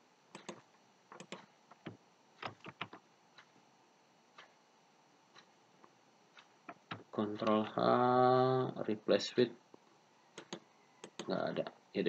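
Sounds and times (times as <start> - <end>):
computer mouse and keyboard clicks: 0.3 - 3.5, 10.4 - 11.3.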